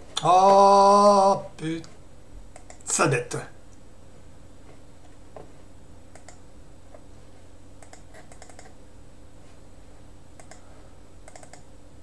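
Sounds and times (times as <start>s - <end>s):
low steady hum: 0.0s - 12.0s
computer input clicks: 7.8s - 8.7s, 11.3s - 11.7s.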